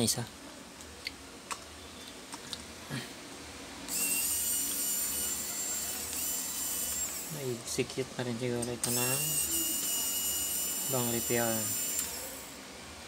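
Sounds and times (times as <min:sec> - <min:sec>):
electric screwdriver whining: 0:03.9 - 0:07.3, 0:08.8 - 0:12.5.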